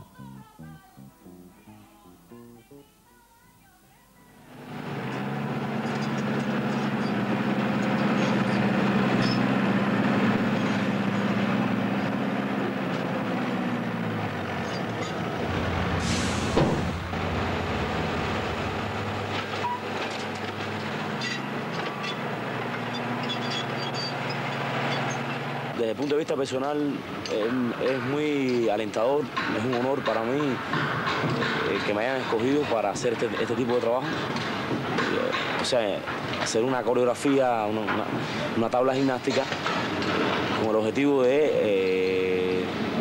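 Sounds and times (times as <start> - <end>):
tractor engine running: 4.5 - 40.7
short sharp hiss: 15.9 - 17.1
small clanks: 19.3 - 25.4.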